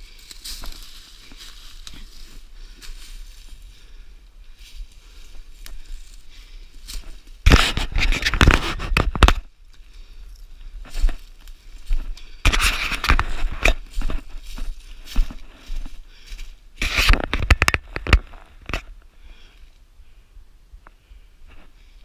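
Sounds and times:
footsteps crunching through dry leaves: 0:00.0 - 0:03.9, 0:04.5 - 0:08.9, 0:10.7 - 0:17.3
brush scraping: 0:04.7 - 0:09.3, 0:10.8 - 0:16.0, 0:16.8 - 0:17.8.

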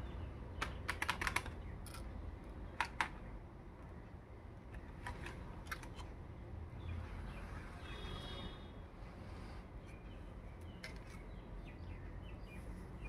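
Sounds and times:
plastic toy pieces clicking: 0:00.6 - 0:02.1, 0:04.8 - 0:06.1.

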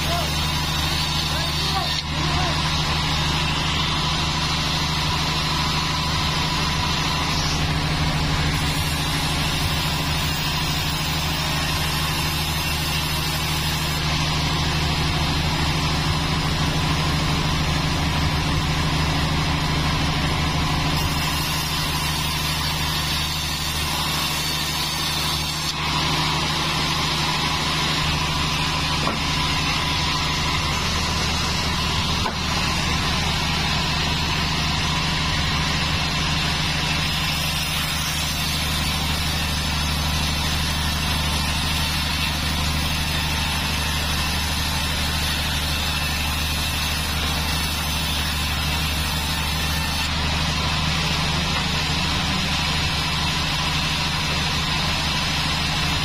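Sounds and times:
band saw humming: 0:00.0 - 0:56.0
band saw sawing timber: 0:00.0 - 0:56.0.

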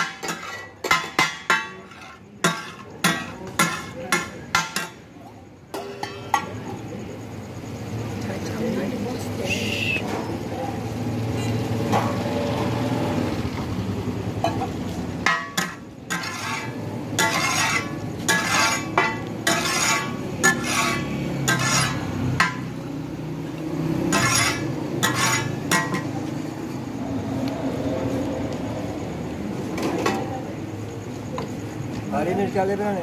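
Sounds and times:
metal spatulas on griddle: 0:00.0 - 0:07.0, 0:11.2 - 0:12.8, 0:14.3 - 0:26.8.

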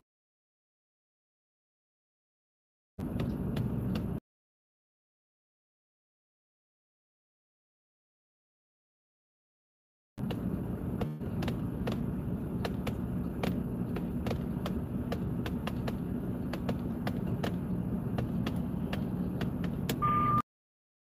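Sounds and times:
car cabin hum: 0:03.0 - 0:04.2, 0:10.2 - 0:20.4
raindrops ticking on windshield: 0:10.2 - 0:20.0
short high beep: 0:20.0 - 0:20.5.

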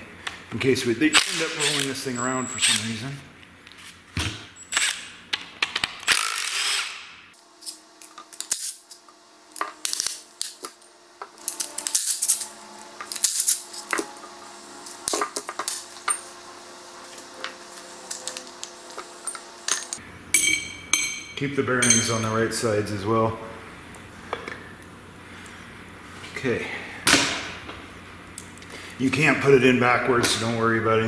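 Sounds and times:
tools and steel parts clinking: 0:07.6 - 0:14.3, 0:14.9 - 0:16.4, 0:17.0 - 0:22.3.

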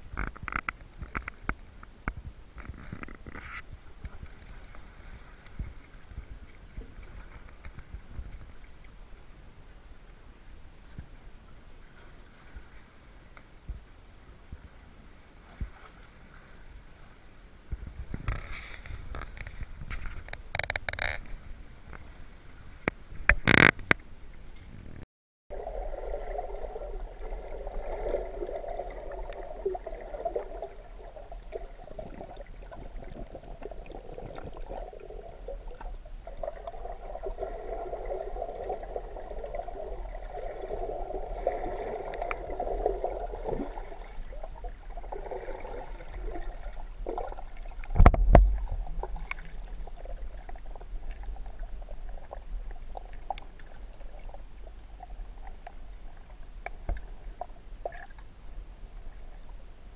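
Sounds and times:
underwater gurgling water: 0:25.5 - 0:59.9.

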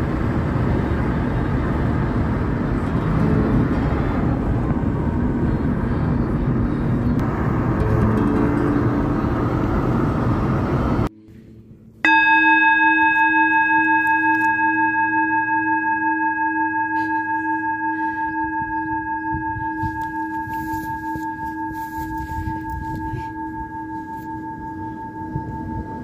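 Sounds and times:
car road noise: 0:00.0 - 0:12.0
struck metal bell ringing: 0:07.7 - 0:09.7, 0:11.6 - 0:26.0.

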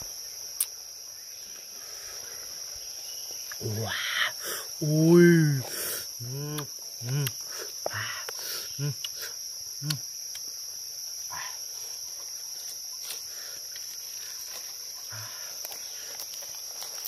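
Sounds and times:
insects droning: 0:00.0 - 0:17.0
short low calls: 0:03.6 - 0:10.0.

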